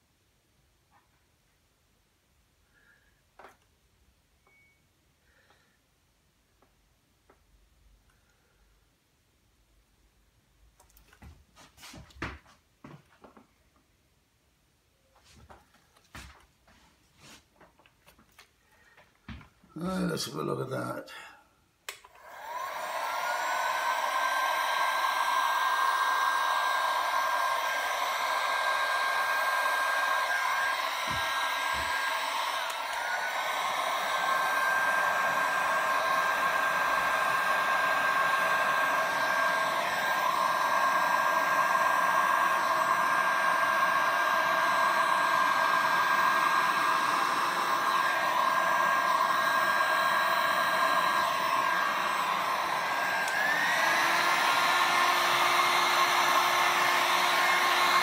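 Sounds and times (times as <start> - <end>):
heat gun motor whine: 22.0 - 58.0.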